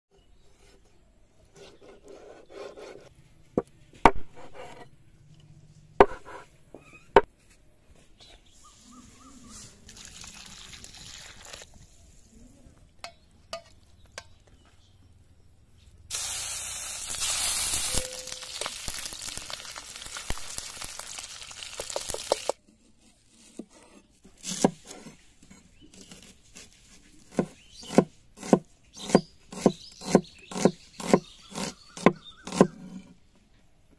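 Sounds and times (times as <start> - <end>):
knife chopping on board: 27.3 - 32.8.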